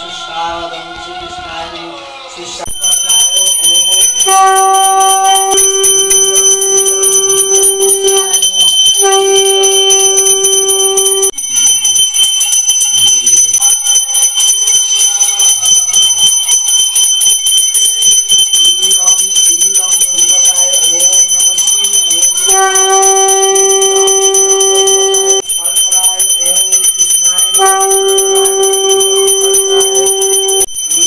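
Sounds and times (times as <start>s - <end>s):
hand bell ringing rapidly: 2.7s - 31.0s
steady lower note: 4.3s - 11.4s, 22.5s - 25.4s.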